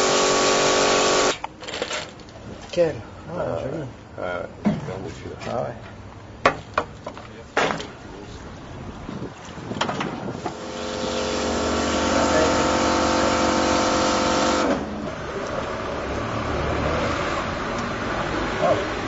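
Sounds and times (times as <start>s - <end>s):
machine motor hum and hiss: 0.0s - 1.4s, 10.4s - 14.9s.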